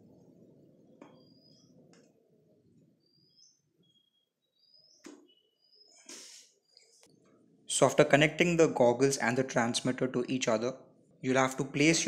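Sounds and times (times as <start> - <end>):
bird chirps: 1.0 - 1.9, 2.9 - 7.0.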